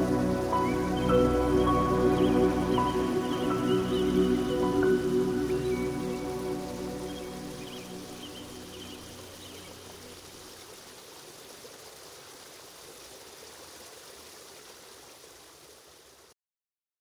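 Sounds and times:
slow background music: 0:00.0 - 0:10.2
rushing water: 0:00.0 - 0:16.3.

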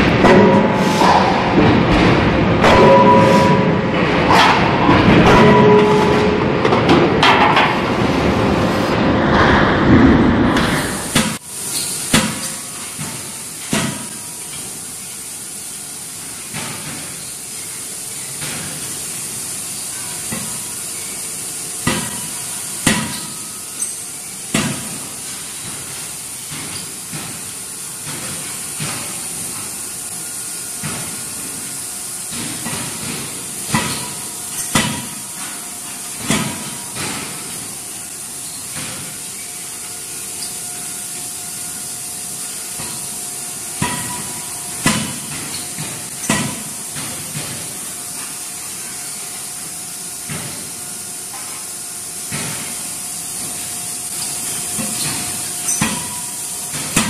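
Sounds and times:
forging hammer blows: 0:00.0 - 0:11.4
dense mechanical noise: 0:00.0 - 0:57.0.

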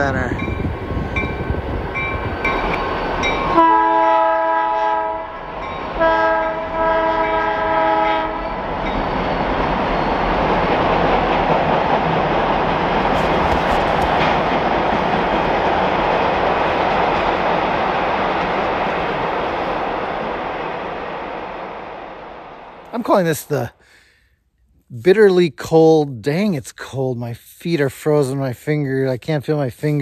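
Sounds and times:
passing train rumble: 0:00.0 - 0:23.8
train horn blasts: 0:03.5 - 0:05.4, 0:06.0 - 0:08.6.

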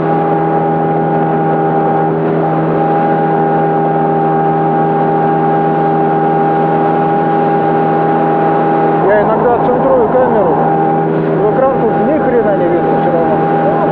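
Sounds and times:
motorboat engine droning: 0:00.0 - 0:13.9.

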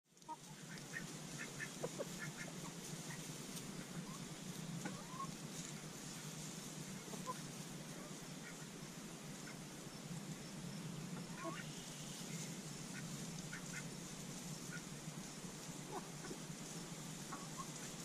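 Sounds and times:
hens clucking: 0:00.2 - 0:18.0.

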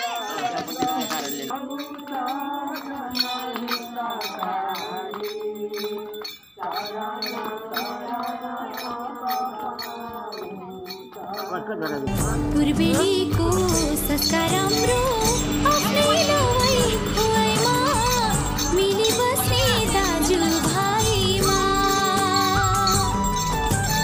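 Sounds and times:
chiming clinking hits: 0:00.0 - 0:24.0
wavering melodic line: 0:11.5 - 0:24.0.

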